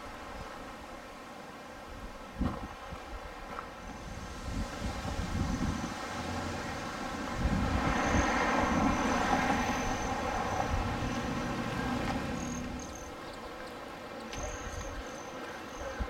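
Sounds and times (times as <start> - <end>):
vehicle passing: 4.8 - 13.1.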